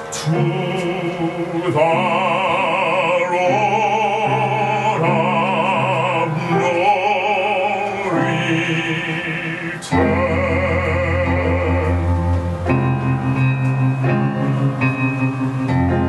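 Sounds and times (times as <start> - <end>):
man singing with vibrato: 0.0 - 13.4
grand piano: 0.0 - 16.0
electric guitar: 9.7 - 16.0.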